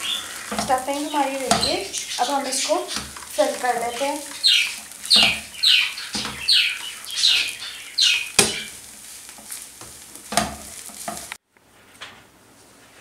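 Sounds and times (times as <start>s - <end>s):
wooden spatula scraping a pan: 0.0s - 11.4s
spatula knocking on pan: 0.4s - 7.6s, 8.2s - 11.3s.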